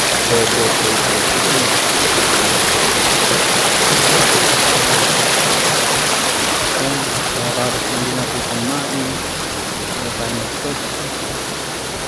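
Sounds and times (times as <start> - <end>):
river water rushing over rocks: 0.0 - 12.0.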